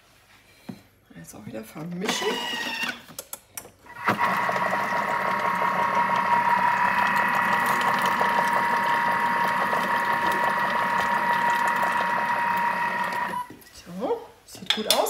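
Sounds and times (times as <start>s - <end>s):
food processor motor whining: 2.1s - 3.0s, 3.9s - 13.5s.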